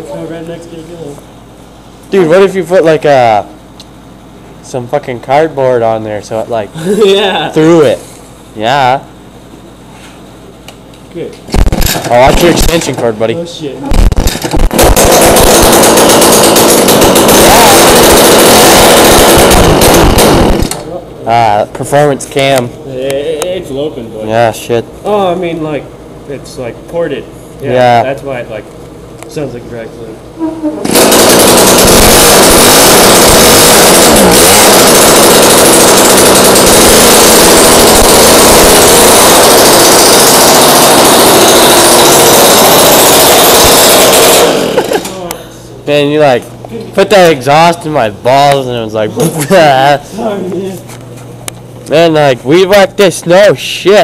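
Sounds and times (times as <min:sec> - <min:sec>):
string trimmer engine revving: 0:14.8 - 0:20.8, 0:30.8 - 0:45.1.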